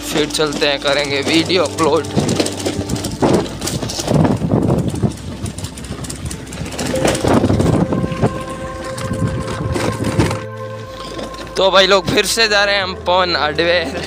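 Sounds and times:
scooter rumbling and rattling: 0.0s - 14.0s
steady tone: 6.8s - 13.0s.

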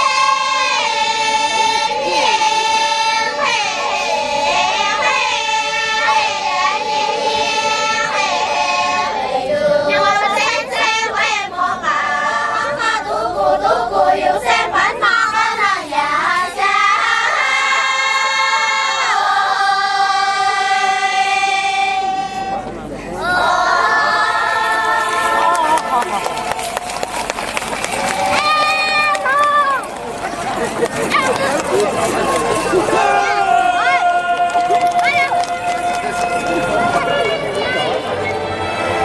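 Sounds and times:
girls choir singing in parts: 0.0s - 22.6s, 23.2s - 27.3s.

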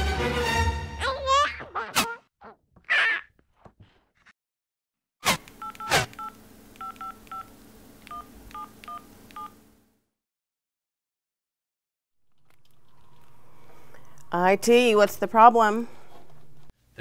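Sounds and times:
phone clicks: 5.4s - 9.5s
low hum: 12.2s - 16.7s.

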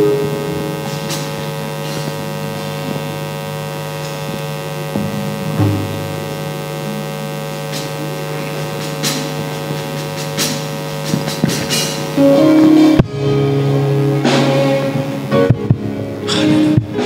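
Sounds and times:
instrument notes: 0.0s - 2.8s
electrical mains hum: 0.0s - 17.0s.

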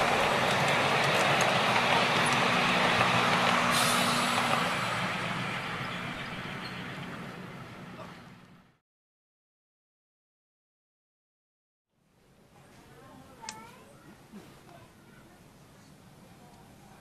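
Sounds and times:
miniature train rolling on rails: 0.0s - 7.7s.

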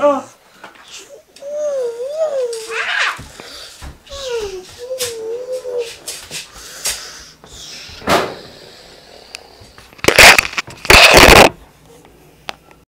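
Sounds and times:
rubbing scrapes on microphone: 10.2s - 11.5s.

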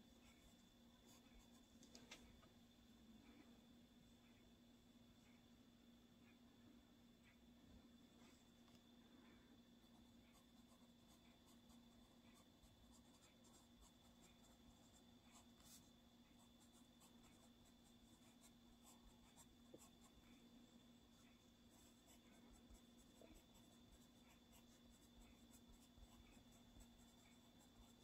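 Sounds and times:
pencil scratching on paper: 10.0s - 28.0s.

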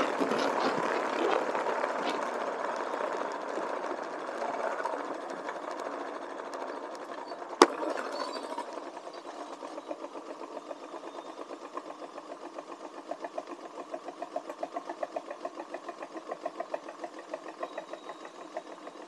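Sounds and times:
motorcycle engine rattling: 0.0s - 19.0s.

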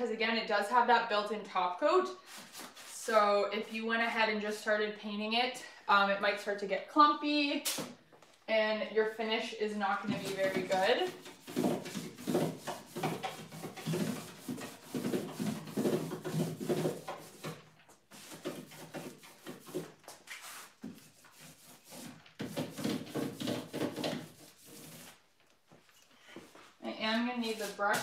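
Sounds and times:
paintbrush rubbing on wood: 10.2s - 25.2s, 27.4s - 28.0s.

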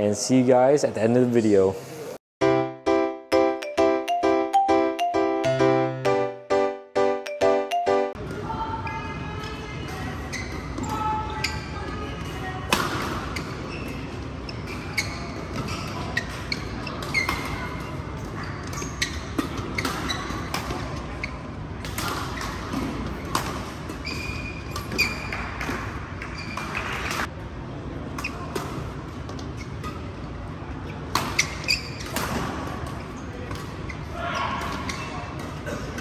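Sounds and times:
shoes squeaking on court: 8.8s - 12.5s, 13.2s - 21.5s, 22.1s - 27.3s, 30.8s - 35.6s.

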